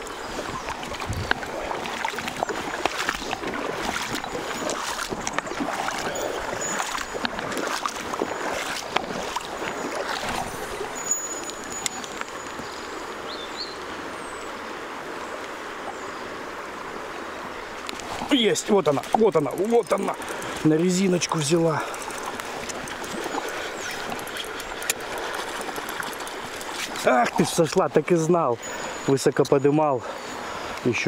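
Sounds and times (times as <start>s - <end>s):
small splashes and clicks: 0.0s - 12.6s, 17.8s - 27.8s
river water rushing: 0.0s - 31.0s.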